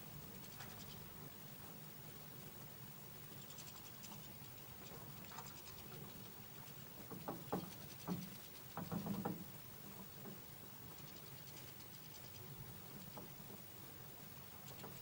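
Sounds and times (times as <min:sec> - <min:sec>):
birds scrabbling on plastic feeder: 0:03.4 - 0:13.6.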